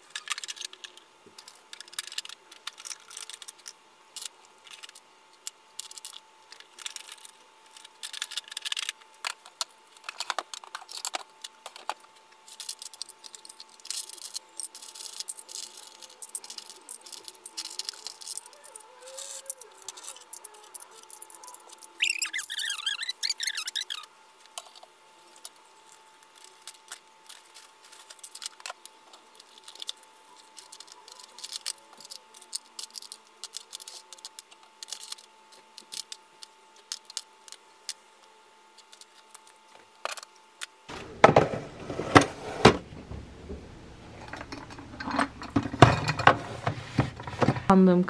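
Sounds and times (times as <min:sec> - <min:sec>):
faint steady hum: 0:00.0 - 0:48.0
knocks and rustling: 0:40.9 - 0:47.7.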